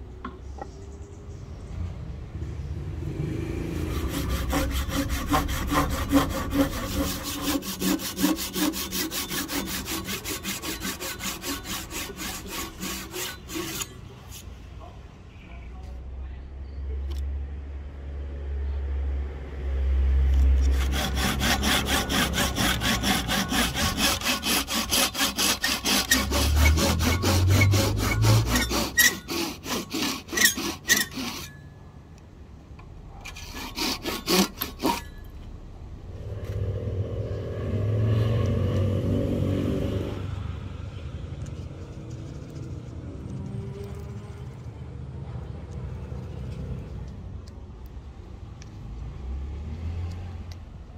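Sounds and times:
hand saw cutting wood: 3.5 - 14.4, 20.5 - 31.7, 33.2 - 35.3
low rumble: 35.5 - 44.3.

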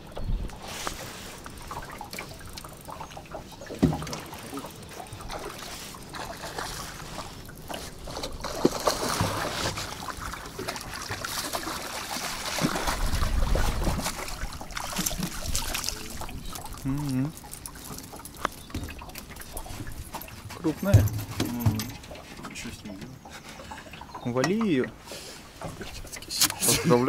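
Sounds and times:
fish splashing in water: 0.5 - 21.4.

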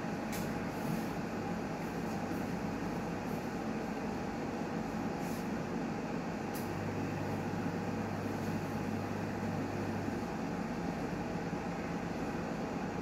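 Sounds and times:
low pump hum: 5.8 - 13.0.

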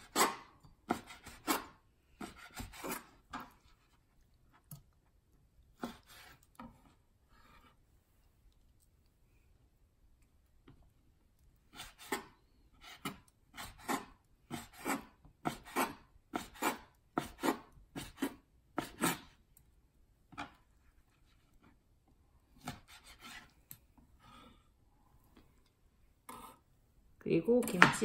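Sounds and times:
knife slicing squid: 0.0 - 3.6, 11.7 - 19.4, 22.6 - 23.5.

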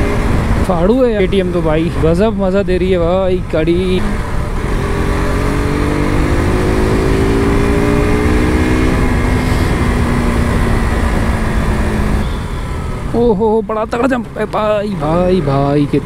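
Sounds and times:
wind rumble on microphone: 0.0 - 12.3
motorcycle engine accelerating: 0.0 - 15.4.

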